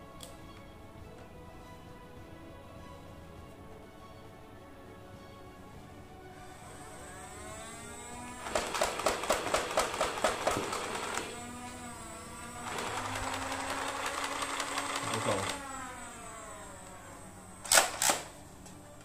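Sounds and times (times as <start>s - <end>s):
motorized flywheels whining: 6.4s - 19.0s
toy blaster full-auto rattle: 8.4s - 11.4s, 12.6s - 16.6s, 17.6s - 18.3s.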